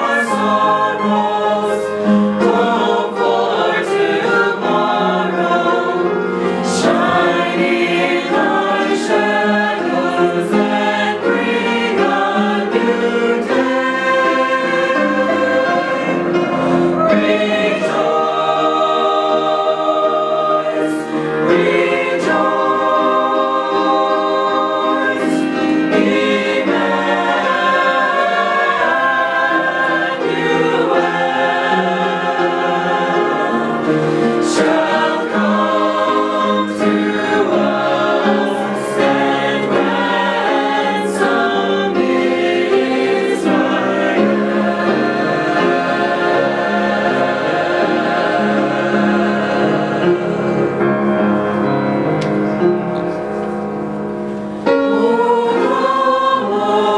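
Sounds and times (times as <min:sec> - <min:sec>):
mixed choir singing a hymn: 0:00.0 - 0:56.9.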